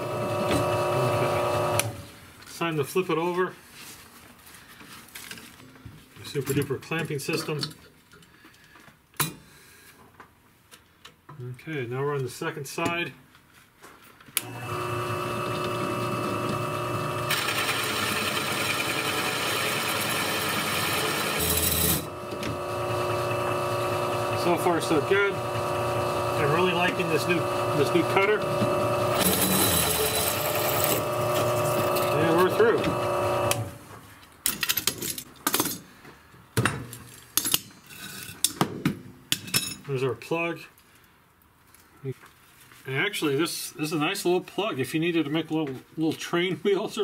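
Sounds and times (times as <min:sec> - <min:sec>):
hole cutter cutting steel: 0:00.0 - 0:02.0, 0:14.4 - 0:33.8
drill press motor hum: 0:00.0 - 0:02.1, 0:14.4 - 0:33.8.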